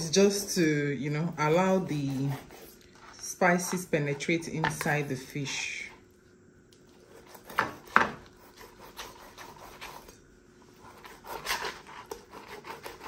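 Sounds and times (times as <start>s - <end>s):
knife scraping through fish skin: 1.8s - 3.8s, 7.0s - 13.0s.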